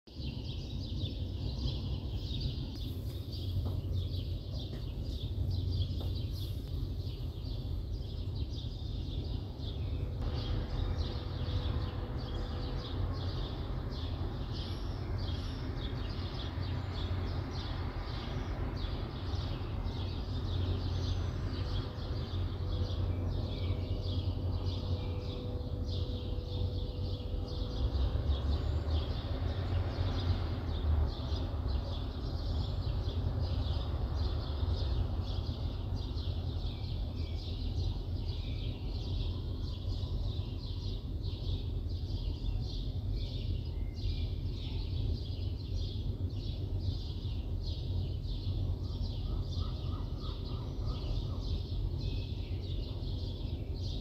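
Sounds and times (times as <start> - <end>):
birds chirping: 0.1 - 54.0
city traffic rumble: 0.1 - 54.0
faint steady hum: 0.1 - 54.0.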